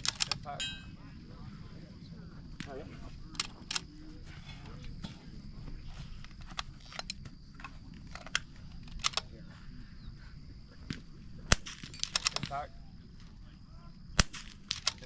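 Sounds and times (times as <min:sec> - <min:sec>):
rifle shots: 0:11.5 - 0:12.6, 0:14.2 - 0:15.0.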